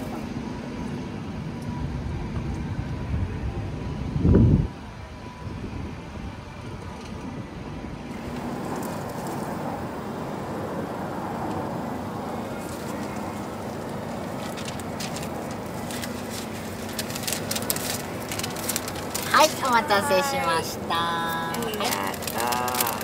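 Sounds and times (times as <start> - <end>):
street food stall background hum: 0.0 - 23.0
paper wrapper crackling: 12.6 - 23.0.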